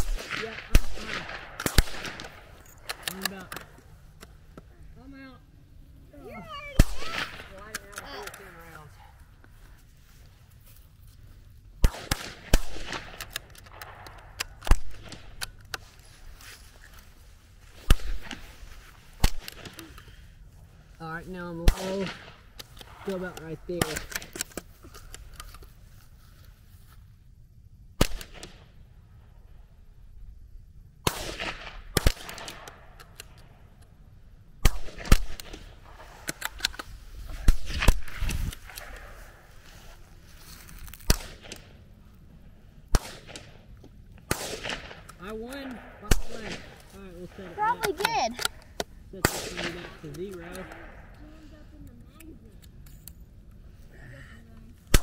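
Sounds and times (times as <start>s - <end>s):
rifle shots: 0.0s - 3.7s, 6.7s - 8.0s, 11.8s - 15.6s, 17.8s - 18.5s, 19.2s - 19.8s, 21.6s - 24.3s, 28.0s - 28.7s, 31.0s - 33.4s, 34.6s - 36.8s, 37.4s - 39.4s, 41.0s - 41.8s, 42.9s - 48.5s, 49.2s - 51.1s.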